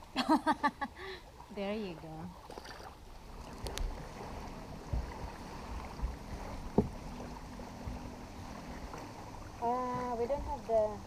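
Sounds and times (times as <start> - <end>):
water noise: 0.0 - 11.0
low bumps in a boat: 2.4 - 10.9.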